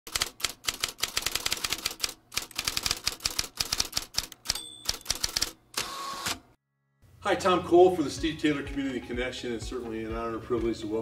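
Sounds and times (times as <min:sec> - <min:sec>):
typewriter keys clacking: 0:00.1 - 0:05.5
typewriter bell ding: 0:04.5 - 0:05.5.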